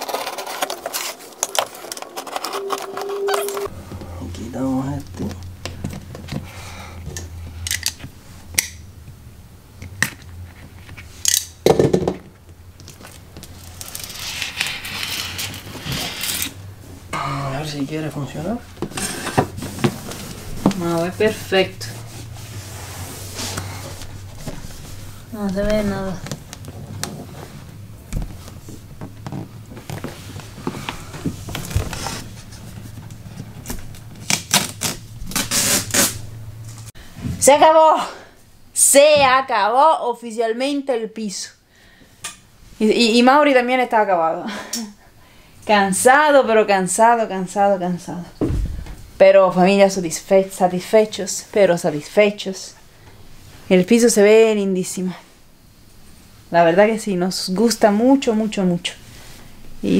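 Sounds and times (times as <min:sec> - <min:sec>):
vinyl strip tearing: 0:00.0 - 0:03.7, 0:13.6 - 0:16.6, 0:34.0 - 0:36.2
low steady hum: 0:00.0 - 0:38.8
vinyl sheet flapping and rustling: 0:19.5 - 0:37.5
dull low thump: 0:48.4 - 0:49.1.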